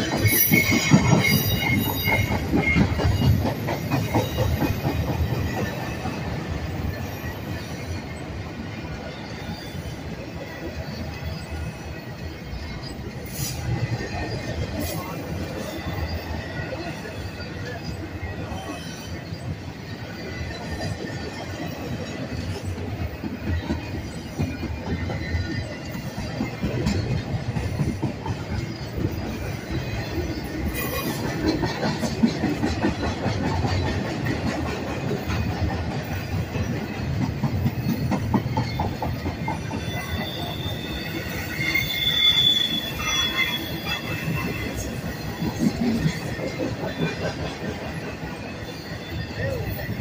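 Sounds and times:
train rumbling past: 0.0s - 50.0s
wheels clattering on rails: 0.0s - 50.0s
high wheel squeal: 0.1s - 6.0s, 37.7s - 47.3s.

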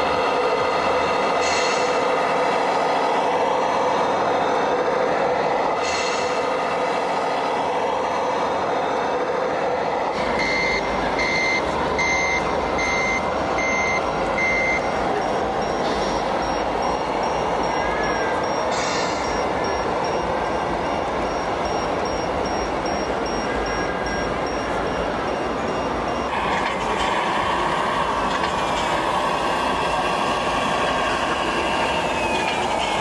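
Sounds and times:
reversing beeps: 10.3s - 27.1s.

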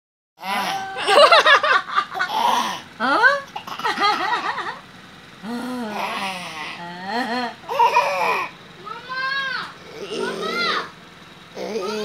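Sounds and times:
toddler giggling: 0.5s - 4.8s, 5.4s - 8.5s.

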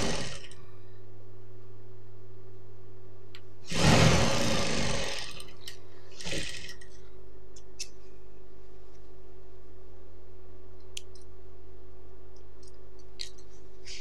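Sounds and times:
sewing machine motor humming: 0.0s - 0.6s, 3.7s - 5.5s, 6.2s - 6.8s
sewing machine stitching: 0.0s - 0.6s, 3.7s - 6.8s.

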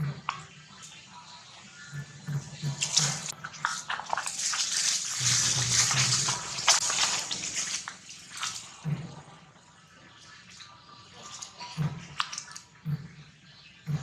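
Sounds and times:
dry leaves rustling and crackling: 2.8s - 8.8s.

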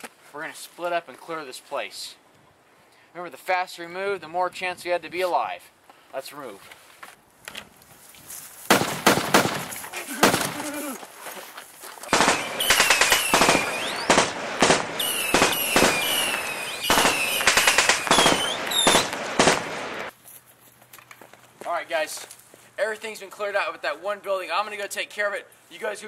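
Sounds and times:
machine-gun bursts: 8.7s - 10.6s, 12.1s - 20.1s
high falling whistles: 12.1s - 14.4s, 15.0s - 19.2s.

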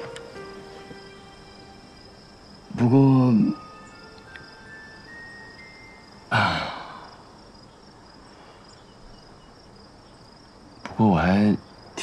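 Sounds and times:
crickets chirping: 0.0s - 12.0s
person sighing: 6.3s - 7.3s.

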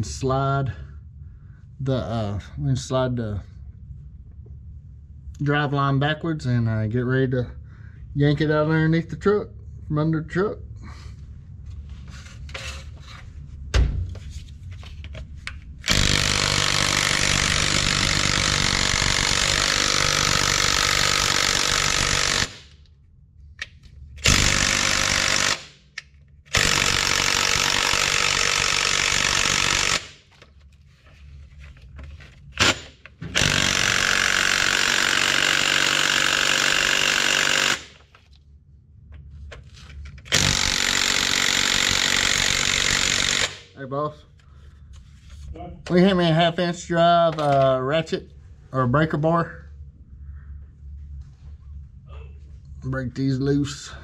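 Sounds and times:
impact wrench running: 15.8s - 22.8s, 24.2s - 30.4s, 32.5s - 38.2s, 40.2s - 43.8s.

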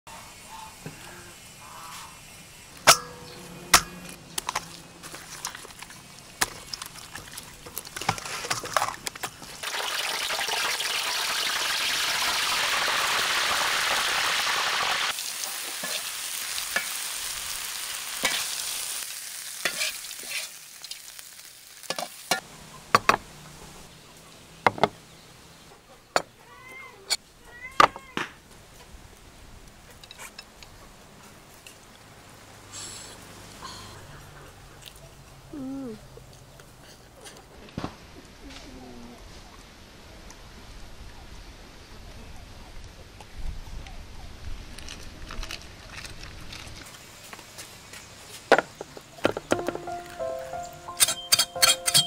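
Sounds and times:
deep-frying sizzle in hot oil: 9.5s - 22.5s.

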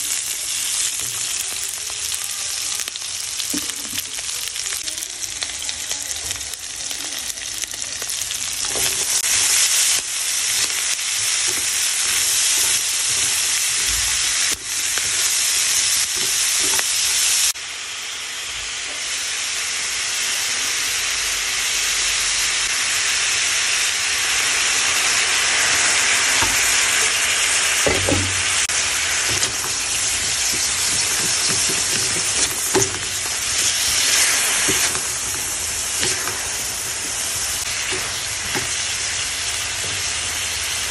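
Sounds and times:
food sizzling in a wok: 0.0s - 40.9s
spatula scraping pan: 27.8s - 39.1s.

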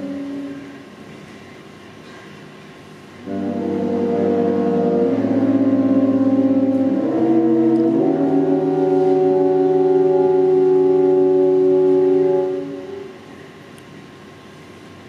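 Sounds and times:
wind ensemble playing slow chords: 0.0s - 0.9s, 3.2s - 13.4s.

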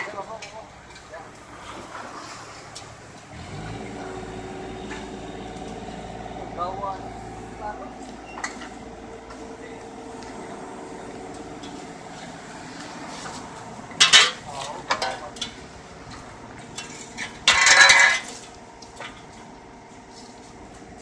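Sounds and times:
excavator engine idling: 0.0s - 21.0s
shovels scraping on pavement: 11.7s - 15.2s.

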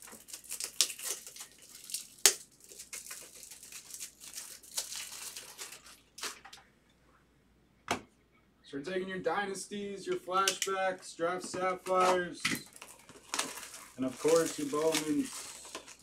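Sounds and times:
plastic wrapping crinkling and tearing: 0.0s - 6.6s, 11.8s - 16.0s.

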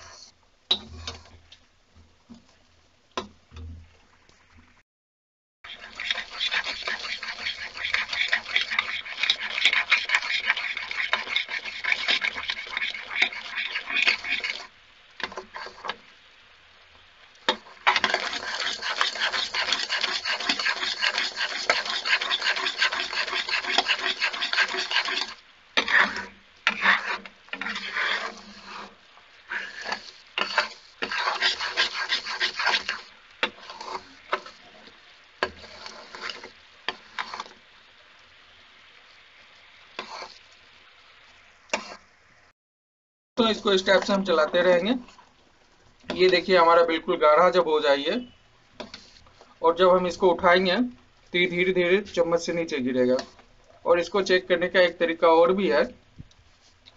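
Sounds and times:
spatula scraping pan: 0.0s - 1.4s, 5.6s - 16.0s, 17.5s - 37.6s, 39.9s - 40.6s, 41.7s - 42.1s, 43.4s - 45.3s, 46.0s - 47.6s, 48.2s - 49.8s, 52.1s - 53.4s.

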